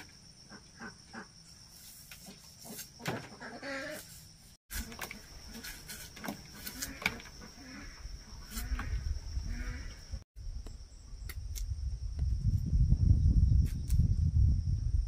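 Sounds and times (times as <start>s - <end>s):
insects droning: 0.0s - 15.0s
farm animal calling: 3.3s - 4.1s.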